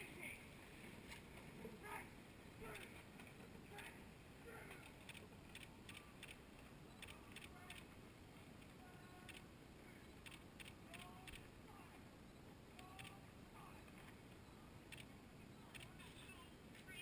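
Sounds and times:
small irregular ticks: 0:04.7 - 0:07.9, 0:08.6 - 0:09.5, 0:10.2 - 0:11.5.

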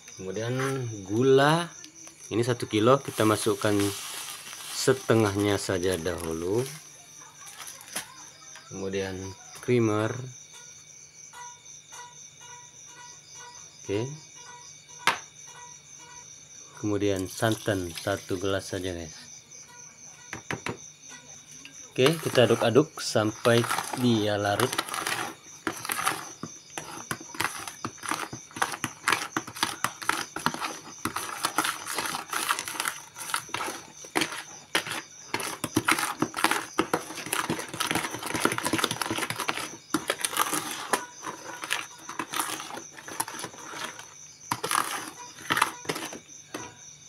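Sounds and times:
metal spoon scraping plastic bucket: 0:00.3 - 0:01.4, 0:02.5 - 0:08.2, 0:17.2 - 0:18.8, 0:21.9 - 0:46.8.

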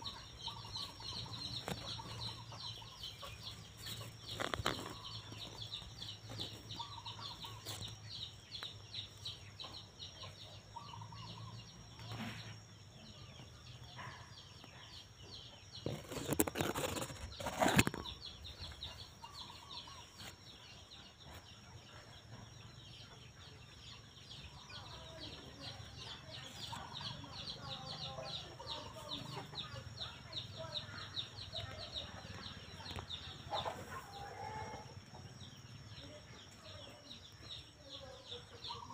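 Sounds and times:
chickens clucking: 0:00.0 - 0:38.9.

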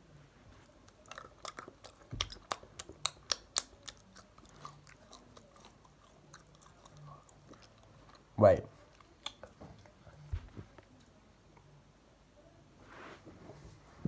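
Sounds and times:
chewing: 0:00.6 - 0:11.7
chocolate crunching: 0:00.8 - 0:09.9.

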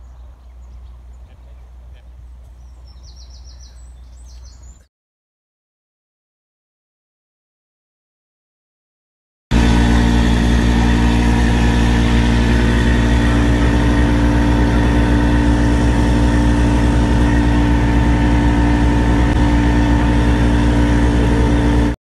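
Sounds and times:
large engine running: 0:09.5 - 0:22.0.

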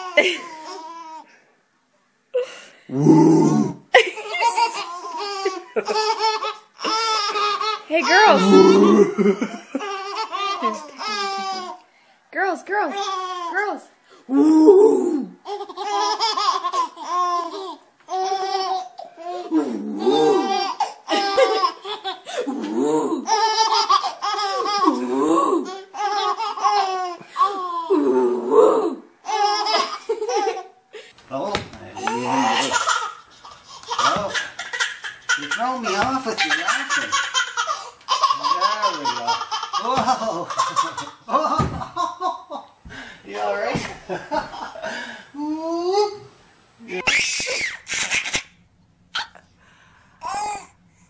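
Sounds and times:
baby laughing: 0:00.0 - 0:01.2, 0:04.0 - 0:11.8, 0:15.4 - 0:27.9, 0:29.2 - 0:30.8, 0:32.0 - 0:42.5
babies giggling: 0:04.0 - 0:11.8, 0:15.5 - 0:27.9, 0:29.2 - 0:30.8, 0:32.0 - 0:42.6.

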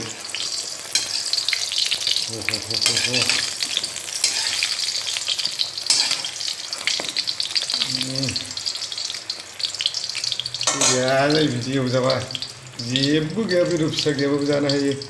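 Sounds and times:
spatula turning food: 0:00.0 - 0:11.5
vegetables sizzling in hot oil: 0:00.0 - 0:15.0.

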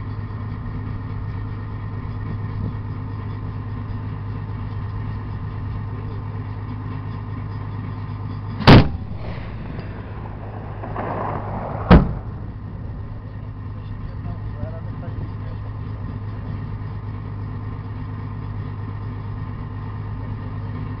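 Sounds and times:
armoured vehicle engine idling: 0:00.0 - 0:21.0
faint rolling rumble: 0:00.0 - 0:21.0
turret cannon shot: 0:08.6 - 0:13.0.

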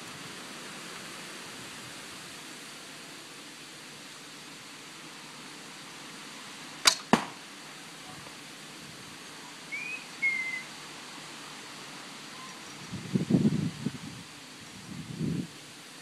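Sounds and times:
arrow striking target: 0:06.8 - 0:07.4
bowstring snapping on release: 0:06.8 - 0:07.4.

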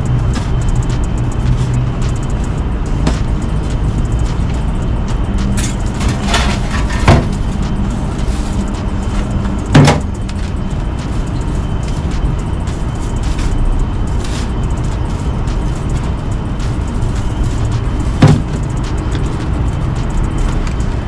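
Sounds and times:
steady low rumble: 0:00.0 - 0:21.0
metal trays clanking: 0:05.4 - 0:10.6.

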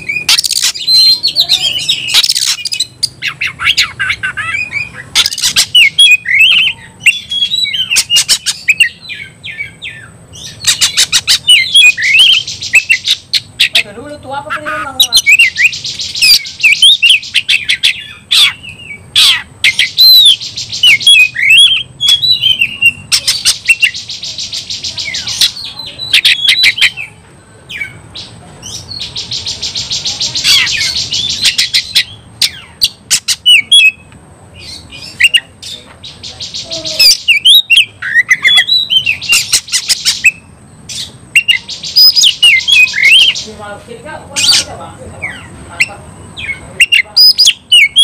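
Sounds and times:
bird buzzy trills: 0:00.0 - 0:43.6
bird clicking calls: 0:00.3 - 0:00.9, 0:02.1 - 0:04.3, 0:05.2 - 0:06.7, 0:30.4 - 0:34.2, 0:39.2 - 0:40.4
bird whistled notes: 0:37.0 - 0:43.4.

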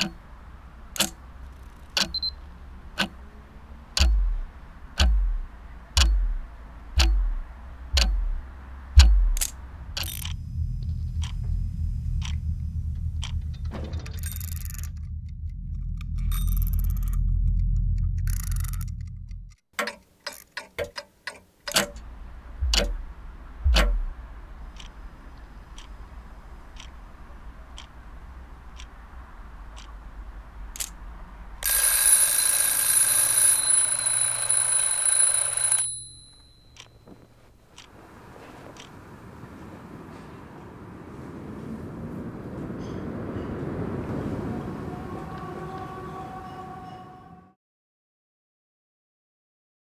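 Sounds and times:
clock ticking: 0:00.0 - 0:03.3, 0:04.0 - 0:31.0, 0:31.6 - 0:38.0
low rumble: 0:04.0 - 0:19.6, 0:22.0 - 0:25.8
alarm clock ringing: 0:31.6 - 0:36.9.

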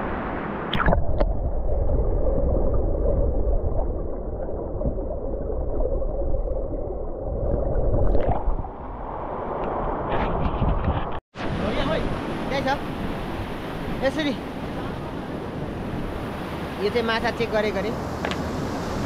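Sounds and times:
water splash: 0:00.6 - 0:10.0
muffled underwater river rumble: 0:00.8 - 0:09.3.

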